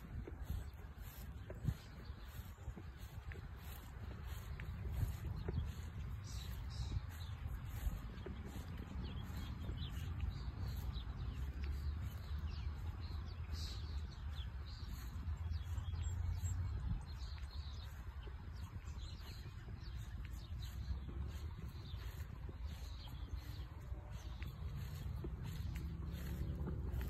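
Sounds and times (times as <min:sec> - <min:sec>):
small birds chirping: 0:00.0 - 0:27.0
wind rumbling on microphone: 0:00.0 - 0:27.0.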